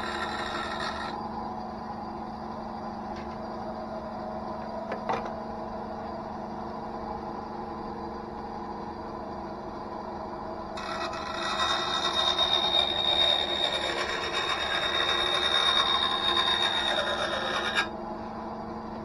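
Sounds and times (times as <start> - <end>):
bandsaw motor hum: 0.0 - 1.3, 8.3 - 18.8.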